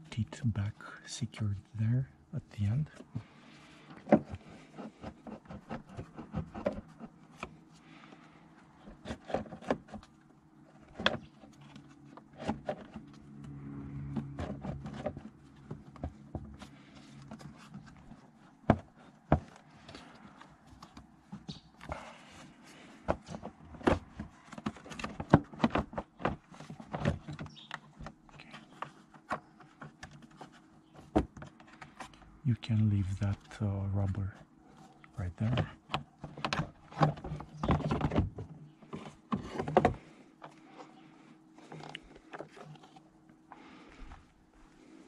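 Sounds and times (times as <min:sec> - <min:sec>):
plastic parts clicking and knocking: 0:02.9 - 0:08.2, 0:08.8 - 0:13.2, 0:14.1 - 0:22.0, 0:22.8 - 0:32.3, 0:34.8 - 0:40.9.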